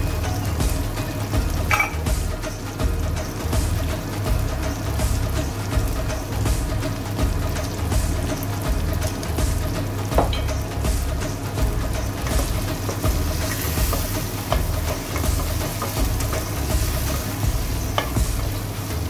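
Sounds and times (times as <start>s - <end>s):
background music with deep bass: 0.0s - 19.0s
spoon knocking against metal pot: 1.7s - 2.1s
spoon stirring food in a pot: 6.9s - 19.0s.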